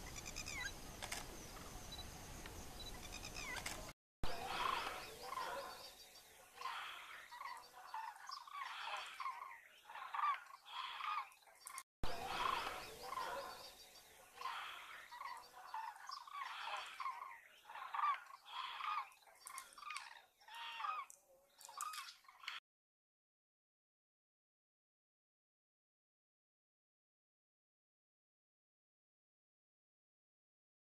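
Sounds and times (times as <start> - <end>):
flock of cranes calling: 4.4 - 5.9, 6.6 - 13.7, 14.4 - 22.6.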